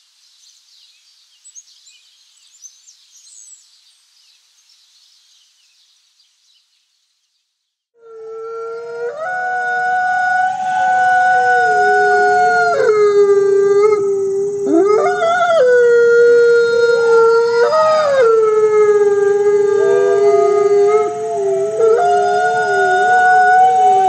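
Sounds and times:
wolves howling: 8.0s - 24.0s.

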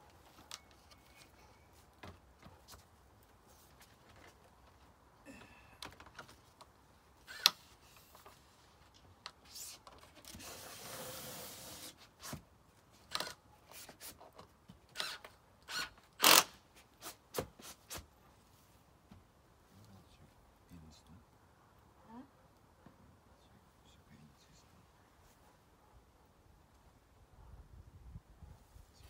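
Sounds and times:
plastic panel scraping slide: 10.0s - 12.4s.

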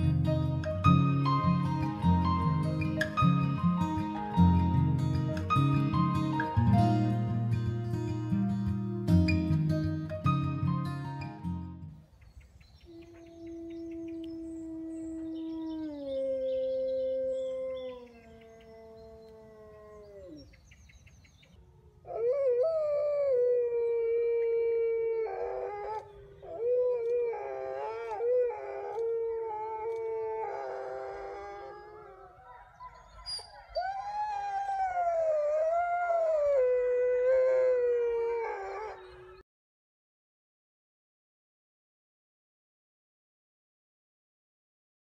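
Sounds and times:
wolves howling: 12.9s - 20.5s, 21.6s - 39.4s.

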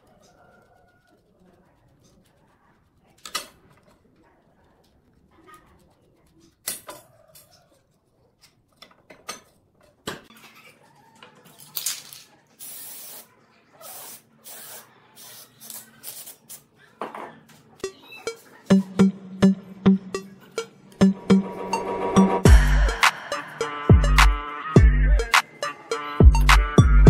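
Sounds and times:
aerosol spray can hissing: 12.6s - 16.4s.

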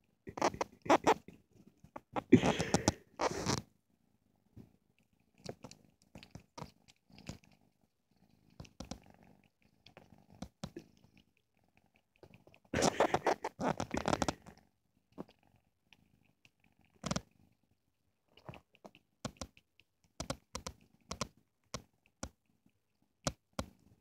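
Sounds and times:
kitten purring: 0.1s - 24.0s
scratchy noise: 0.3s - 1.3s, 2.1s - 3.6s, 12.8s - 14.4s
small clicking mouth sounds: 5.3s - 7.6s, 8.5s - 14.6s, 15.2s - 17.3s, 18.3s - 23.9s.

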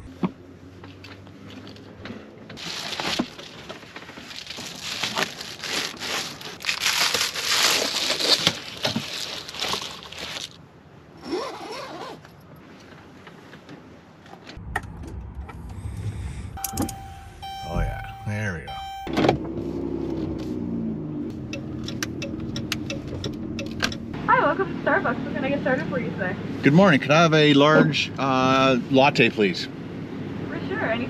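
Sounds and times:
low hum: 14.6s - 19.2s.

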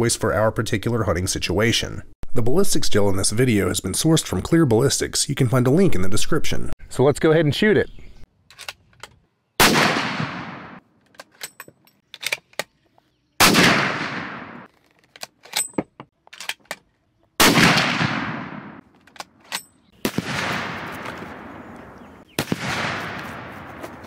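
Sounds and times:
rifle shots echoing: 9.6s - 10.8s, 13.4s - 14.7s, 17.4s - 18.9s, 20.0s - 24.0s.

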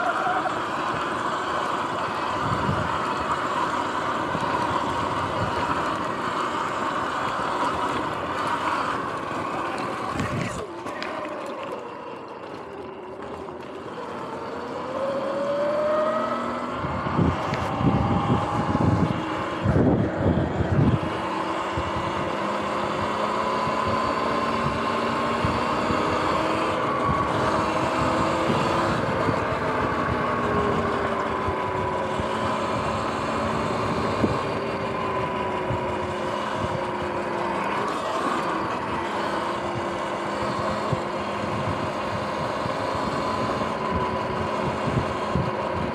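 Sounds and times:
electric motor whining: 0.0s - 45.9s
tyre and wind noise: 0.0s - 45.9s
loud low rumbling: 15.6s - 23.1s.

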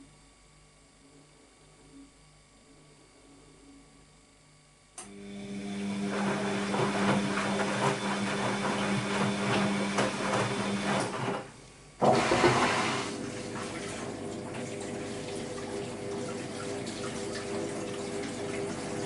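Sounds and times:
washing machine running: 5.0s - 19.0s
water sloshing in drum: 12.0s - 19.0s.

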